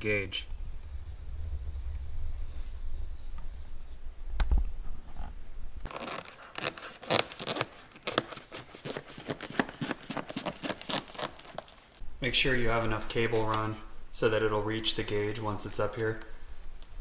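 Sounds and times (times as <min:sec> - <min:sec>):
low rumble: 0:00.0 - 0:05.9
cable scraping plastic trim: 0:05.9 - 0:11.8.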